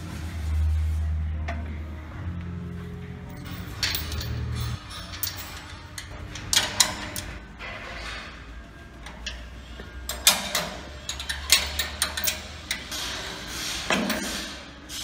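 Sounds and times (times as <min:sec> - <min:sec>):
spanner clicking on metal bolts: 0:03.4 - 0:07.4, 0:09.0 - 0:13.2.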